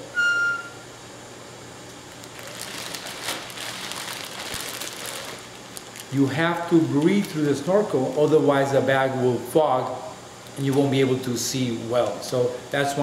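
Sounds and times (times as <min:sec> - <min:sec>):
plastic bag crinkling: 0:02.0 - 0:08.7.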